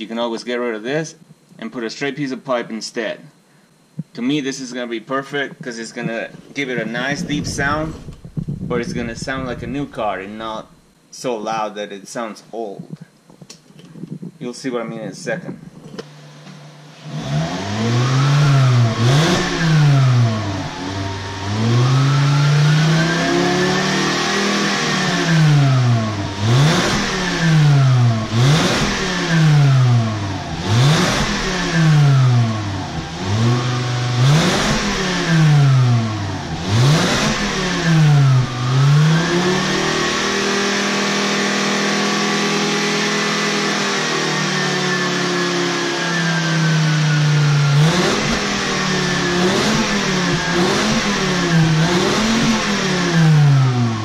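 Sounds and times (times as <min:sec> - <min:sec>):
car engine revving: 0:06.3 - 0:10.8, 0:16.0 - 0:54.0.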